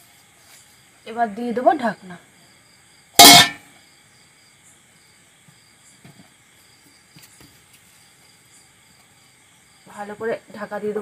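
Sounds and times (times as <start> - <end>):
metal lid clanking on pan: 3.2 - 3.6.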